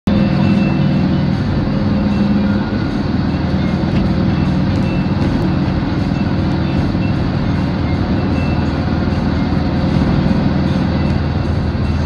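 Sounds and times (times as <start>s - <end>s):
vehicle rumble from inside cabin: 0.0s - 12.0s.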